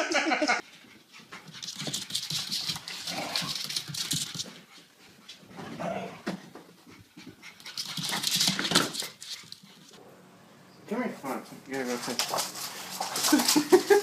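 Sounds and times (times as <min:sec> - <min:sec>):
dog panting: 0:00.6 - 0:10.0
claws scrabbling on wooden floor: 0:11.8 - 0:14.0.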